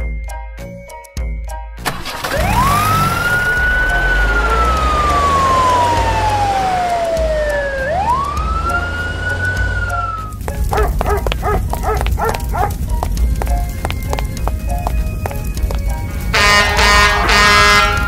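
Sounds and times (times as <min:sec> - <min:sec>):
low engine rumble: 0:01.9 - 0:18.0
fire engine siren wailing: 0:02.1 - 0:12.9, 0:15.2 - 0:18.0.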